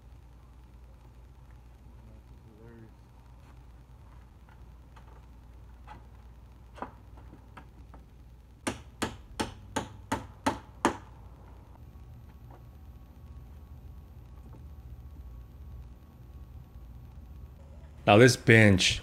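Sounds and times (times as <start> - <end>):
hammer striking wood: 8.6 - 11.1.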